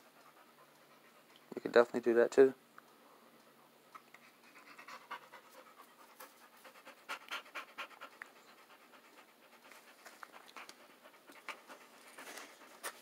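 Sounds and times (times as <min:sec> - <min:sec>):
quick panting: 0:03.5 - 0:13.0.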